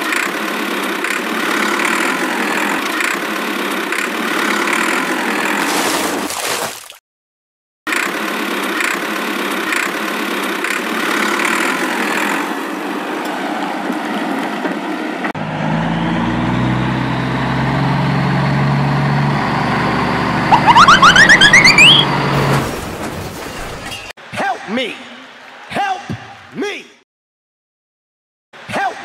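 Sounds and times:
truck engine hum: 0:15.4 - 0:22.6
rising beeps: 0:20.5 - 0:22.1.

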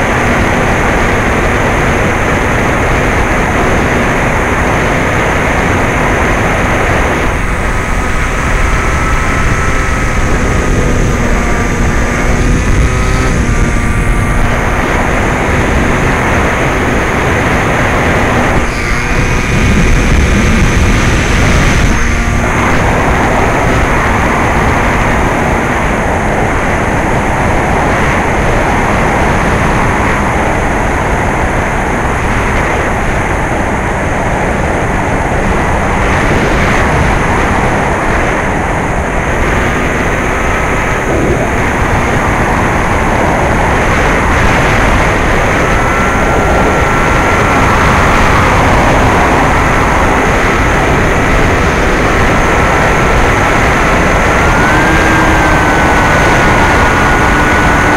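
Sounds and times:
air rushing over microphone: 0:00.0 - 0:57.9
electric motor and propeller: 0:00.0 - 0:57.9
thin motor whine: 0:00.0 - 0:57.9.

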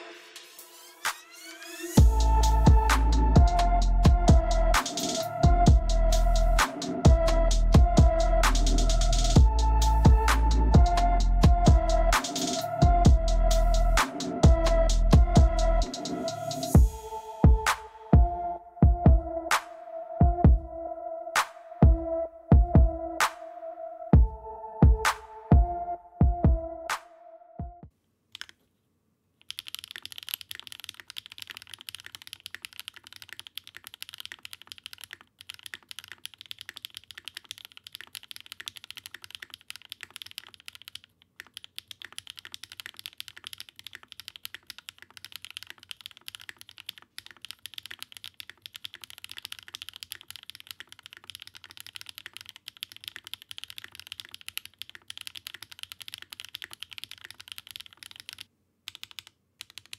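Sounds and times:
fast mechanical keyboard typing: 0:29.4 - 0:59.9.

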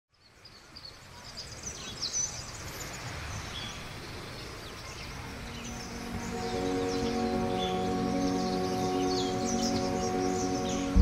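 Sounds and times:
low outdoor ambience: 0:00.1 - 0:11.0
birds chirping and whistling: 0:04.7 - 0:11.0.

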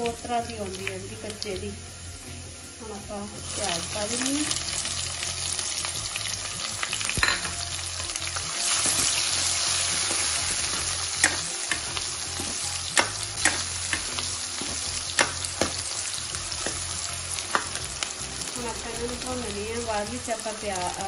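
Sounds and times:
onions sizzling in hot oil: 0:00.0 - 0:21.0
steel ladle clinking on pan: 0:07.2 - 0:07.6.

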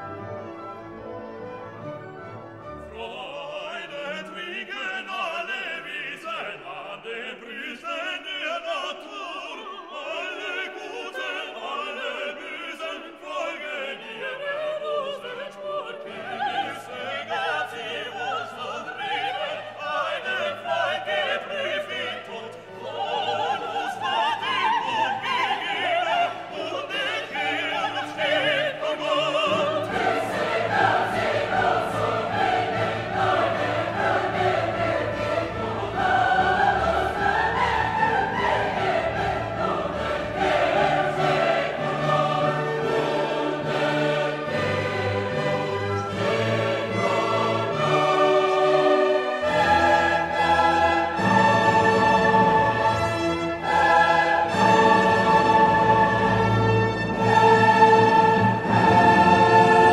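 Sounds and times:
classical orchestral music: 0:00.0 - 0:59.9
singing voices: 0:02.9 - 0:59.9.

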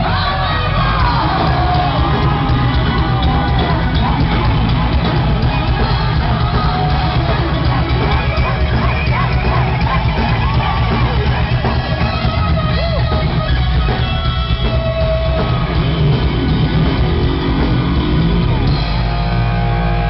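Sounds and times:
heavy metal band playing live: 0:00.0 - 0:20.0.

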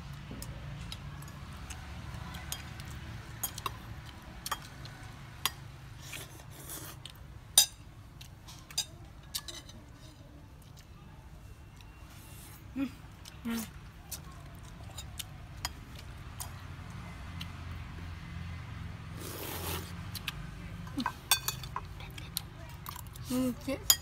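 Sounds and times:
spoons clinking on plates: 0:07.6 - 0:07.8, 0:20.8 - 0:21.9.

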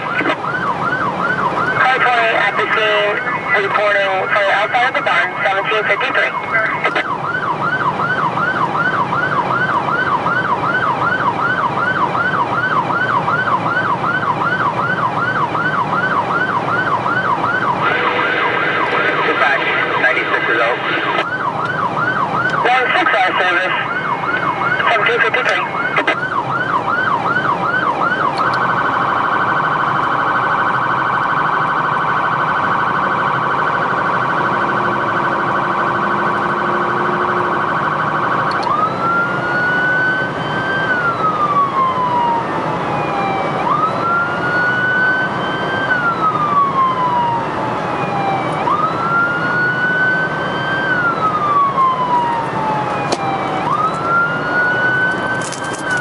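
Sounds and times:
electronic siren: 0:00.0 - 0:56.0.

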